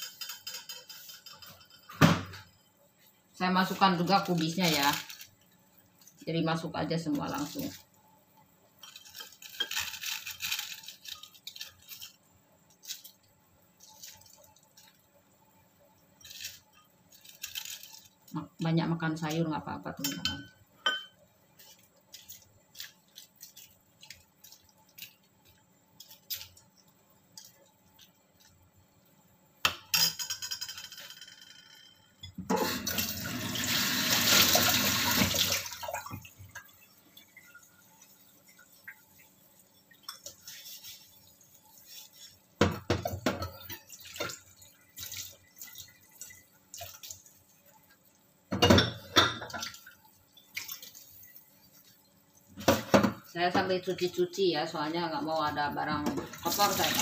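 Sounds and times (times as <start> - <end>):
dishes clinking and knocking: 20.0 - 21.2, 29.7 - 32.8, 42.6 - 44.4, 48.5 - 49.7, 52.6 - 53.3
kitchen tap running: 32.4 - 54.1, 54.8 - 57.0.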